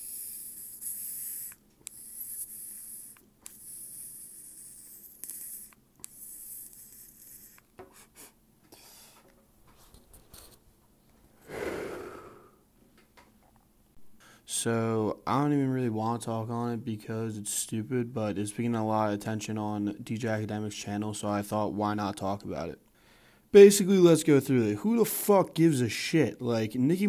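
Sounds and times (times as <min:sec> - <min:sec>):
air hissing through vape pen: 0:00.0 - 0:08.3, 0:11.5 - 0:12.4
breathy exhale: 0:11.4 - 0:12.6, 0:23.0 - 0:23.5.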